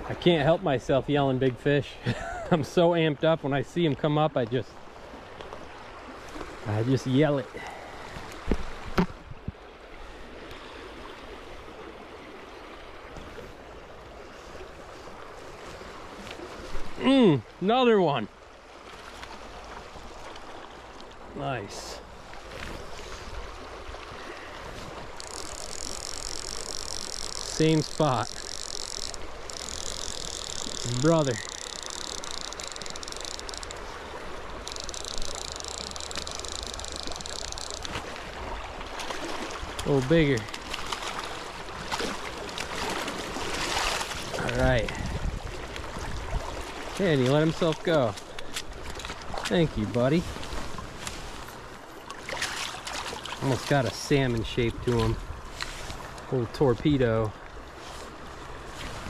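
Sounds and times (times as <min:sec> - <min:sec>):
creek water running: 0:00.0 - 0:59.0
chorus of calling frogs: 0:25.2 - 0:33.8.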